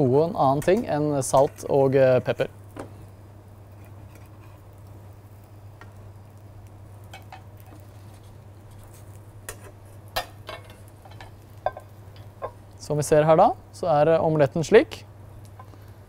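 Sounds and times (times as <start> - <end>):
omelette sizzling in frying pan: 0.0 - 13.8
steady low hum: 0.0 - 16.0.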